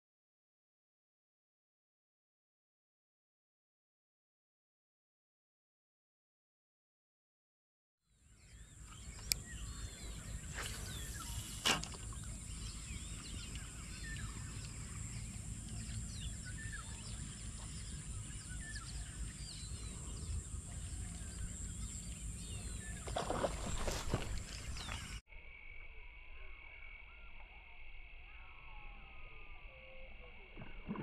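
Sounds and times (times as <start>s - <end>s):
insect drone: 8.1s - 31.0s
birds chirping: 8.2s - 25.2s.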